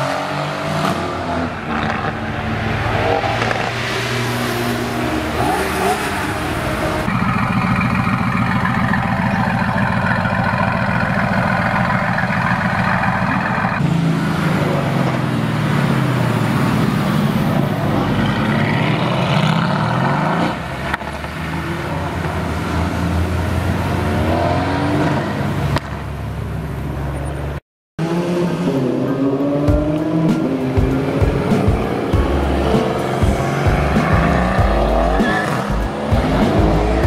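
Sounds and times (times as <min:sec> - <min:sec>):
car accelerating away: 0:00.0 - 0:25.9
car engine revving: 0:00.0 - 0:26.0, 0:28.0 - 0:37.0.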